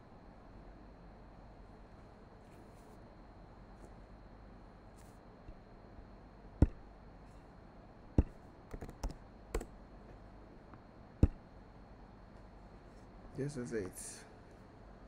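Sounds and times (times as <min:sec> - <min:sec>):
computer keyboard typing: 0:08.2 - 0:09.7.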